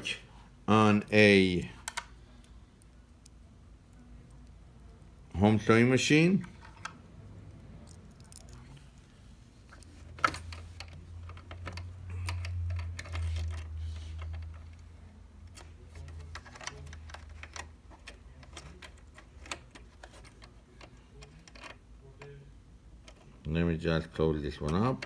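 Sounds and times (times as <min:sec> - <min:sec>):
small metal parts clicking: 0:07.8 - 0:08.8, 0:10.2 - 0:14.8.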